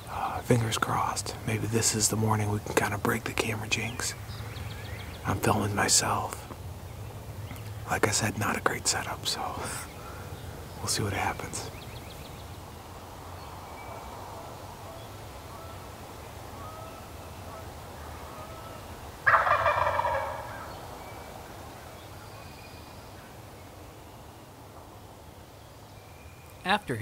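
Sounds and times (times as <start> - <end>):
turkey gobbling: 16.6 - 20.9.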